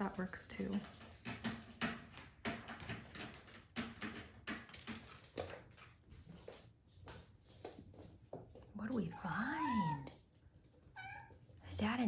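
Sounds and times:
kitten claws tapping and scratching: 0:00.0 - 0:08.7.

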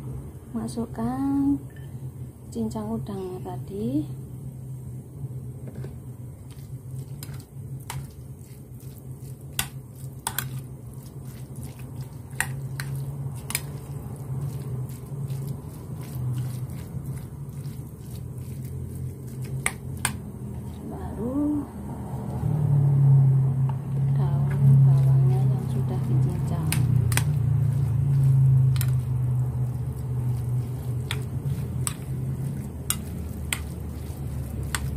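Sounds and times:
steady low hum: 0:00.0 - 0:34.9
spoon squishing mashed food: 0:06.4 - 0:21.0, 0:24.5 - 0:34.9.

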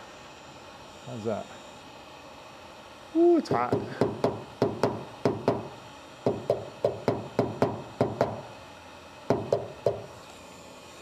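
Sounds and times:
hammer tapping on steel panel: 0:03.7 - 0:08.4, 0:09.3 - 0:10.1.

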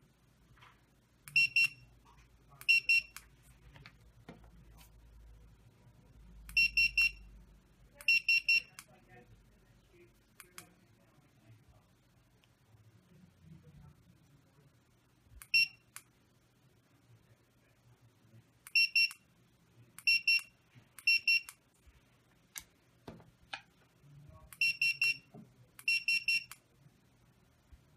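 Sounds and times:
barcode reader beeping: 0:01.3 - 0:01.9, 0:02.6 - 0:03.3, 0:06.5 - 0:07.3, 0:08.0 - 0:08.9, 0:15.4 - 0:16.0, 0:18.7 - 0:19.2, 0:20.0 - 0:21.6, 0:24.6 - 0:26.6.

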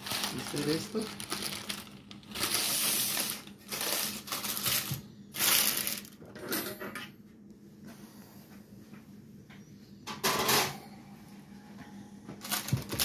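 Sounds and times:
wax paper rustling and crinkling: 0:00.0 - 0:06.2, 0:12.4 - 0:13.0.

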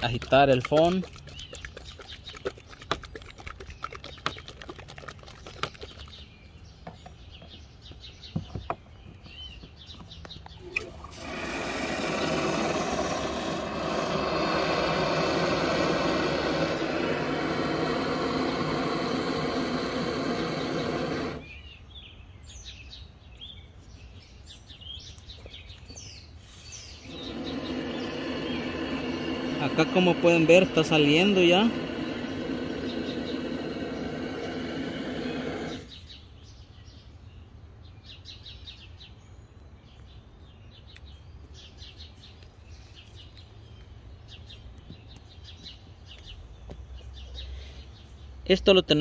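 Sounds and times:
expanding foam spraying hiss: 0:10.8 - 0:21.6, 0:26.4 - 0:36.2.

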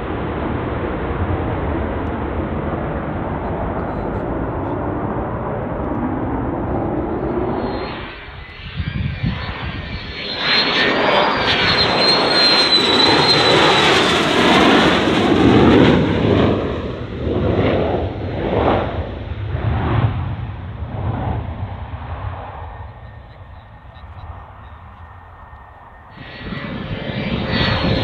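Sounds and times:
jet engine passing: 0:00.0 - 0:28.0
high whine: 0:01.3 - 0:16.2, 0:20.9 - 0:28.0.

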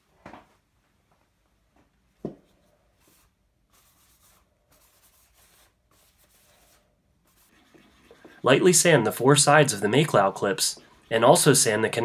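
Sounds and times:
paper towel rubbing wood: 0:03.0 - 0:12.0.

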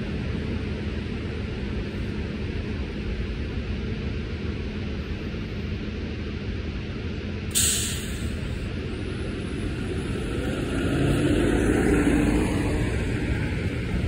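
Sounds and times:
bus engine pulling away: 0:07.4 - 0:14.0
air brakes hissing: 0:07.5 - 0:08.6.

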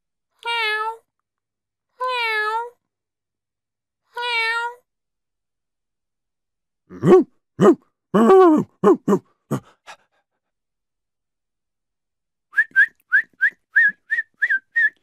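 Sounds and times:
person whistling short high notes: 0:12.6 - 0:15.0.

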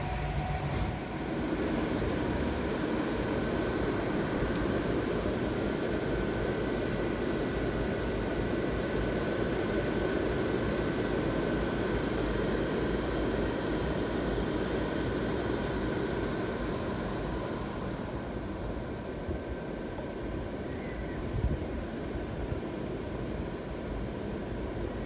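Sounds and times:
faint steady tones: 0:00.0 - 0:08.5
blower fans whirring: 0:00.0 - 0:25.0.

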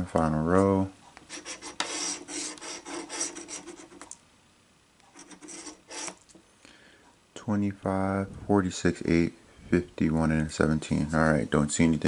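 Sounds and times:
lottery ticket being scratched: 0:01.3 - 0:04.1, 0:05.1 - 0:06.2.

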